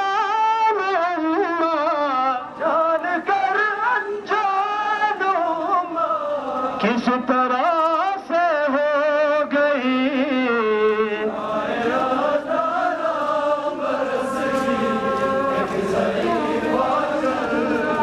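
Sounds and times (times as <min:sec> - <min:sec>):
man chanting a lament: 0:00.0 - 0:11.4
group of voices chanting: 0:11.3 - 0:18.0.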